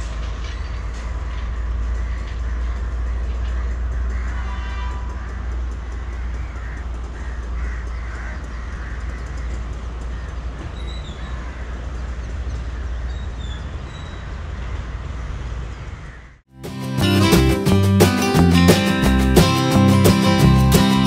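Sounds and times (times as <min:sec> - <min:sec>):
low rumble of wind or traffic: 0:00.0 - 0:16.5
crows cawing: 0:01.7 - 0:13.3, 0:15.7 - 0:16.4
faint bird chirps: 0:10.1 - 0:14.4.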